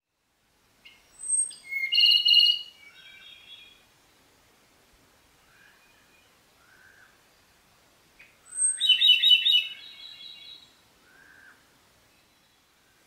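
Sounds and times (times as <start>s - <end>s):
bird singing trill: 0.8s - 3.8s, 8.2s - 10.7s.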